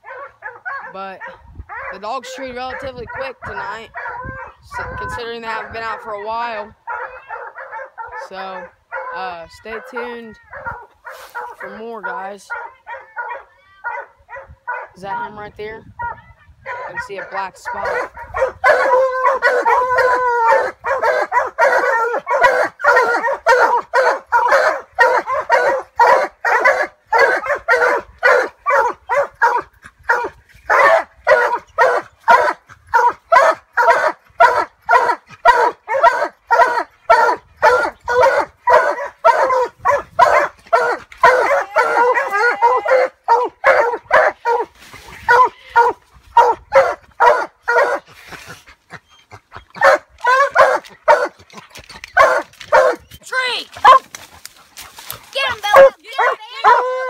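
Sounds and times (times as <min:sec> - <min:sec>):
dogs barking rapidly: 0:00.0 - 0:57.0.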